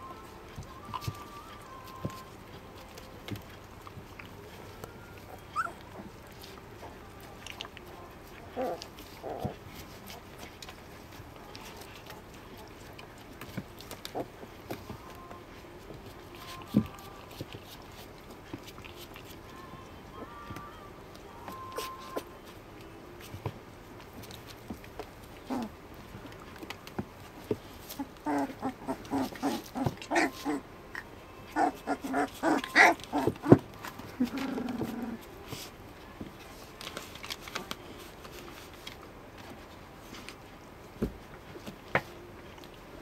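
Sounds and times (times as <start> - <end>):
puppies scuffling on bedding: 0.0 - 30.6, 31.5 - 43.0
puppies whimpering: 0.6 - 10.7, 21.4 - 22.4, 27.8 - 35.3.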